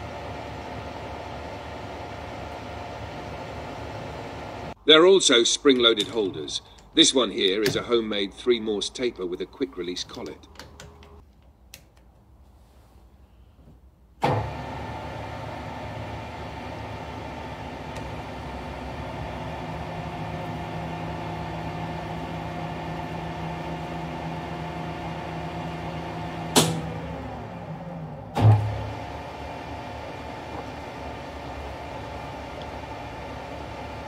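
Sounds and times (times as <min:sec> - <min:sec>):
lathe running with a hum: 0:00.0 - 0:04.8, 0:14.2 - 0:34.0.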